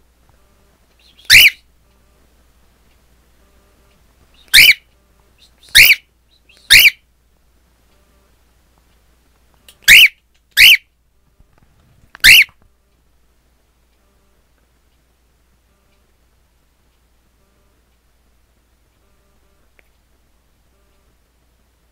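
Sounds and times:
cockatiel sharp calls: 1.0s - 1.6s, 4.4s - 4.9s, 5.6s - 7.0s, 9.8s - 10.9s, 12.2s - 12.5s.

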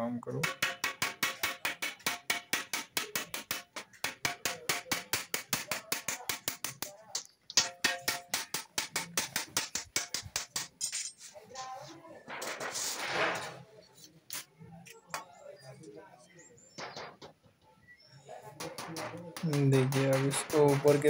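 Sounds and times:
mallet striking ringing steel sheet: 7.6s - 10.3s.

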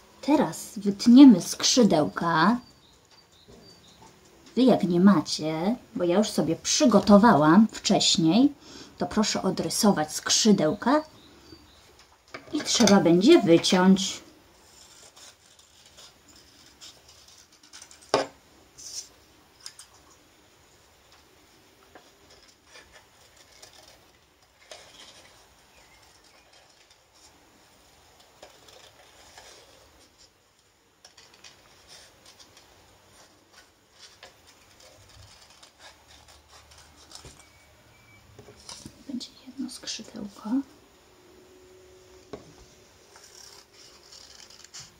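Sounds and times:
paper rustling: 14.6s - 18.2s, 21.9s - 37.6s, 38.4s - 39.0s, 43.0s - 44.9s
scissors cutting paper: 14.6s - 18.2s, 28.4s - 30.3s, 31.0s - 37.6s, 43.1s - 44.9s.

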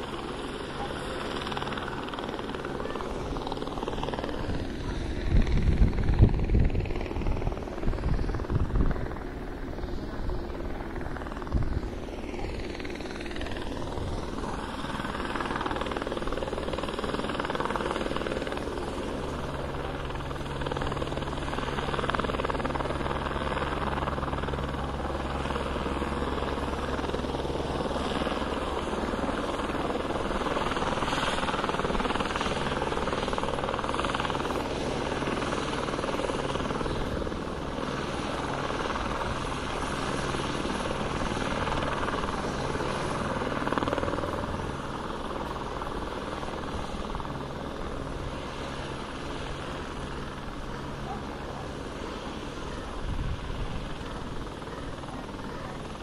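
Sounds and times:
helicopter rotor drone: 0.0s - 56.0s
wind rumble on microphone: 4.4s - 10.4s, 11.4s - 11.9s.

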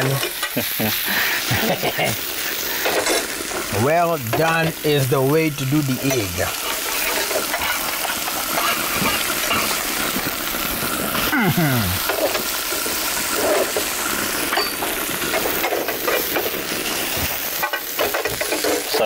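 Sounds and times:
omelette sizzling in oil: 0.0s - 19.0s.

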